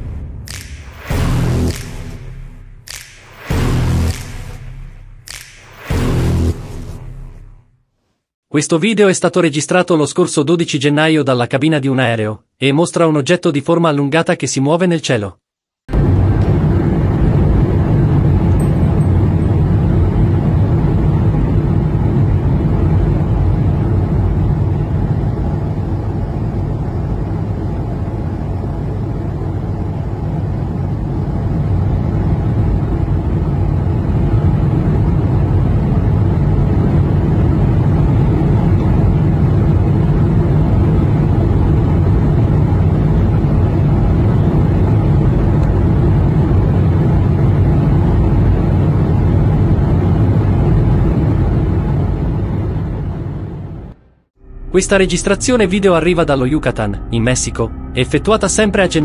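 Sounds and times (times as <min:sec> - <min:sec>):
airliner cabin engine drone: 0:15.9 - 0:59.0.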